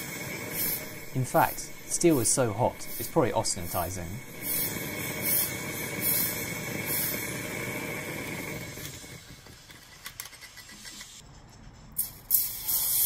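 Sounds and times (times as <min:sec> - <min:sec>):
gas torch flame roaring: 0:00.0 - 0:10.3.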